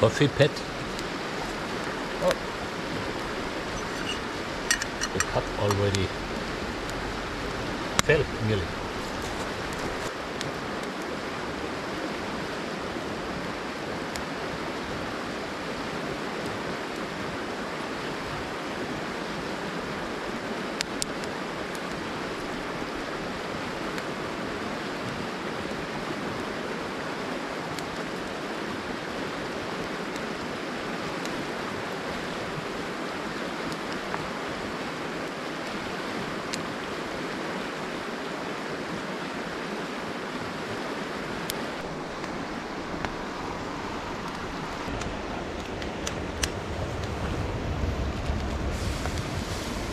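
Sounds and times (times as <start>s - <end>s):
river rushing over stones: 0.0s - 49.9s.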